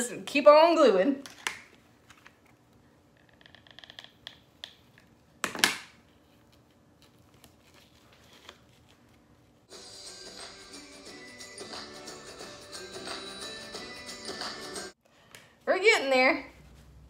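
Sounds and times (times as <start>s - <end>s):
background music: 9.7s - 15.0s.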